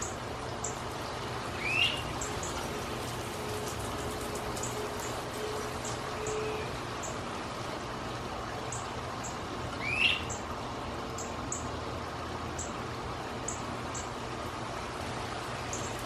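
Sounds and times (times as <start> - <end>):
bird whistled rising call: 1.6 - 2.0, 9.8 - 10.3.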